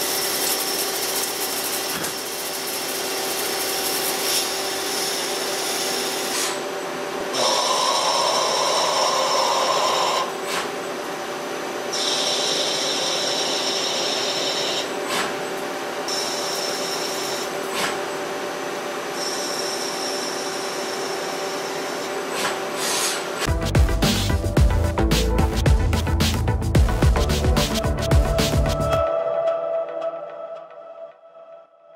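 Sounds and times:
cutting tool rasping hiss: 0:00.0 - 0:06.6, 0:07.3 - 0:10.7, 0:22.2 - 0:23.5
lathe spindle whine: 0:00.0 - 0:10.4, 0:11.9 - 0:15.0, 0:18.6 - 0:22.3.

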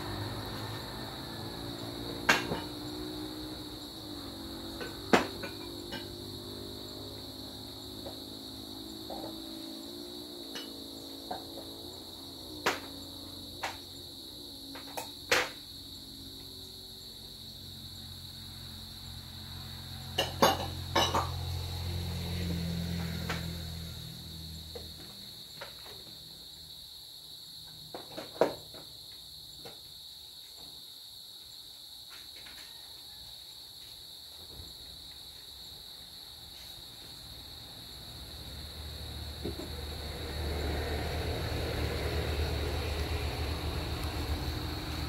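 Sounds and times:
highway traffic hum: 0:00.0 - 0:26.8, 0:36.3 - 0:45.0
high-pitched insect drone: 0:00.0 - 0:28.8, 0:31.4 - 0:45.0.

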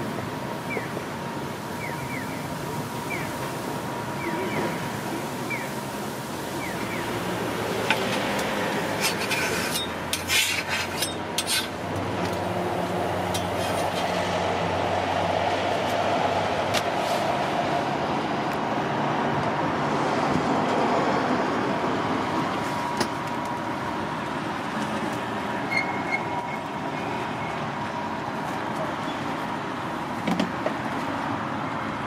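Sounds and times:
passing vehicle rumble: 0:00.0 - 0:30.2
street noise: 0:00.0 - 0:32.0
metal spatula scraping griddle: 0:07.9 - 0:11.8, 0:13.4 - 0:14.2.

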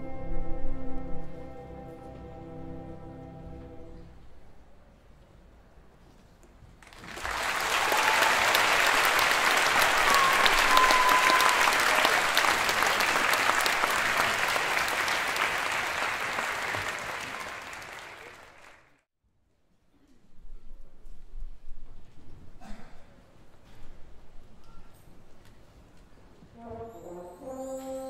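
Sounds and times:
audience applauding: 0:06.8 - 0:19.0
whistles from audience: 0:07.2 - 0:13.6.

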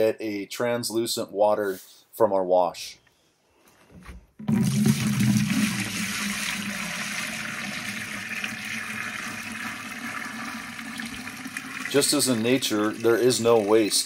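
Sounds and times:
water pouring into bucket: 0:04.4 - 0:14.0.

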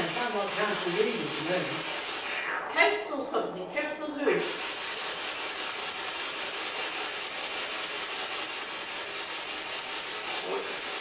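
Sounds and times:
radio static hiss: 0:00.0 - 0:03.5, 0:04.1 - 0:04.7.

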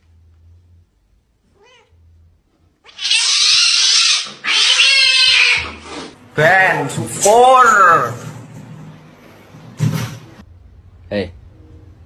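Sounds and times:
cat meowing faintly: 0:01.5 - 0:02.0
cat yowling: 0:01.5 - 0:02.0, 0:02.8 - 0:05.8
cat hissing: 0:02.8 - 0:06.2.

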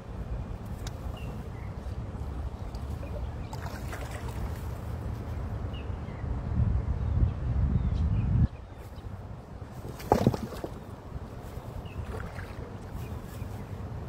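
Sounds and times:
wind rumble on microphone: 0:00.0 - 0:14.0
stream water splashing: 0:02.4 - 0:05.0, 0:09.2 - 0:13.9.

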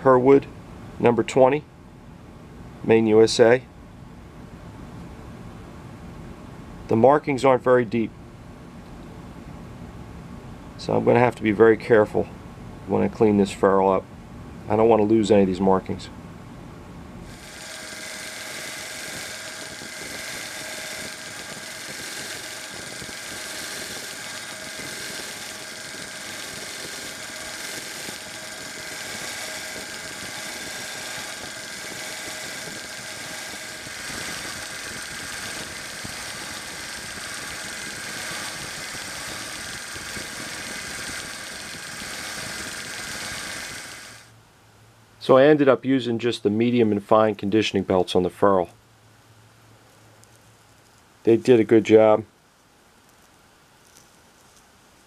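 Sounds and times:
belt sander running: 0:17.2 - 0:44.3
metal held against sanding belt: 0:17.3 - 0:44.3.

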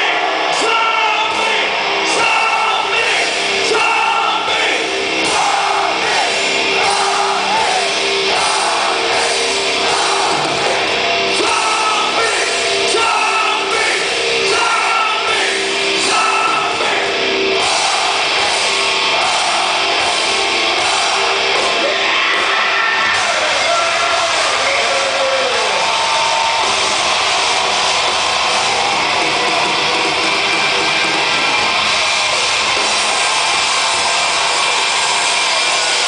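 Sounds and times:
live heavy rock band: 0:00.0 - 0:36.0.

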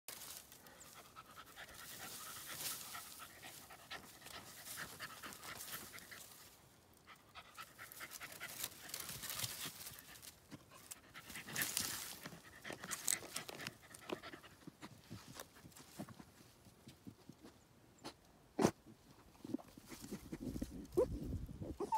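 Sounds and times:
dog panting and sniffing: 0:00.5 - 0:17.5.

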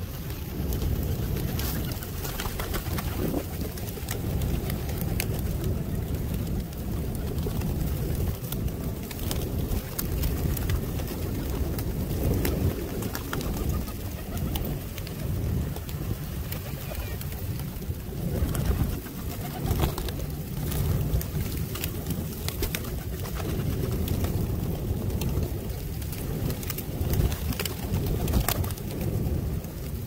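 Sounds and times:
wings flapping: 0:00.0 - 0:30.0
pigeons cooing: 0:09.8 - 0:21.0.

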